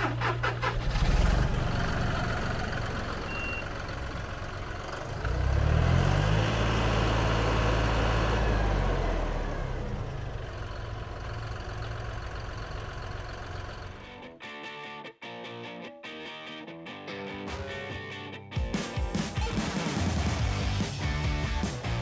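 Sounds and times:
tractor diesel engine revving: 0.0s - 14.2s.

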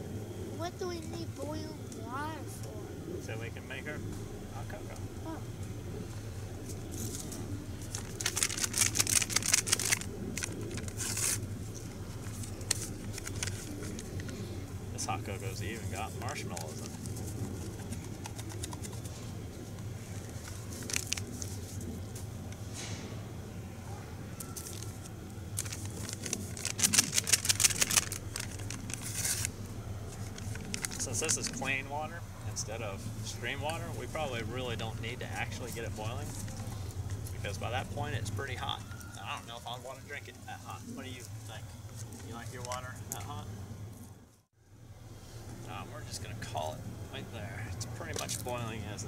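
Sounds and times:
packet crinkling: 7.0s - 14.4s, 16.2s - 19.1s, 20.1s - 21.8s, 24.6s - 31.7s
packet tearing: 7.9s - 11.4s, 20.3s - 21.5s, 25.6s - 29.5s, 30.2s - 31.6s.

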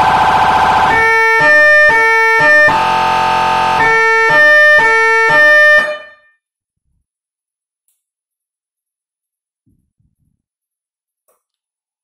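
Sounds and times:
two-tone electronic siren: 0.0s - 6.4s.

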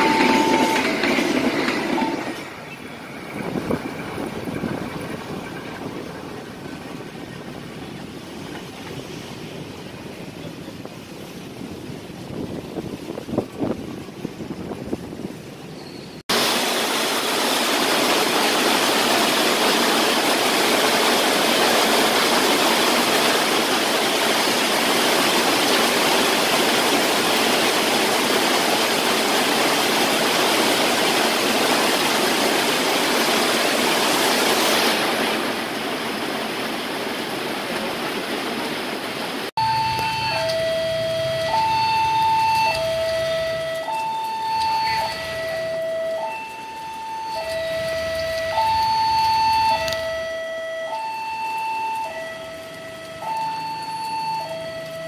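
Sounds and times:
level crossing alarm: 0.0s - 2.6s, 39.6s - 55.0s
wind buffeting microphone: 3.0s - 15.8s
heavy rain falling: 16.3s - 55.0s.

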